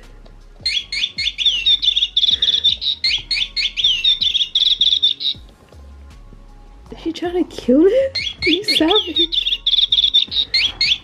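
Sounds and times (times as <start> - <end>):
toy playing bird chirping: 0.7 - 5.5, 8.2 - 11.0.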